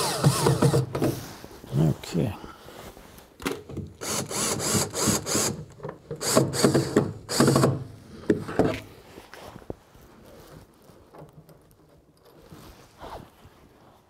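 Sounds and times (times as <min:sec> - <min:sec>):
cordless drill ratcheting buzz: 0:00.0 - 0:00.9, 0:04.0 - 0:05.6, 0:06.2 - 0:07.8.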